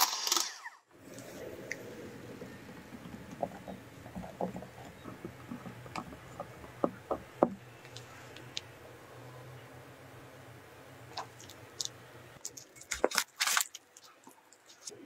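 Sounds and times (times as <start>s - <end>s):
low steady hum: 1.0s - 15.0s
spatula stirring wet batter: 1.1s - 8.6s.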